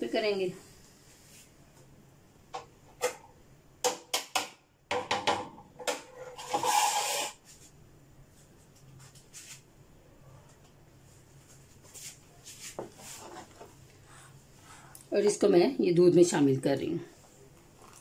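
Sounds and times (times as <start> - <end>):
rubbing scrape: 6.1 - 7.6, 11.9 - 13.6
faint low hum: 7.5 - 18.0.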